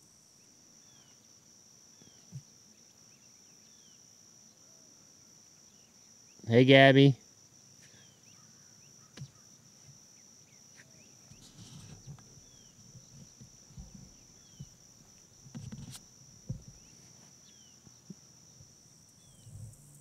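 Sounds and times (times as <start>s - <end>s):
crickets chirping: 0.0s - 20.0s
rustling: 10.8s - 18.2s
soft low thumps: 11.3s - 17.0s.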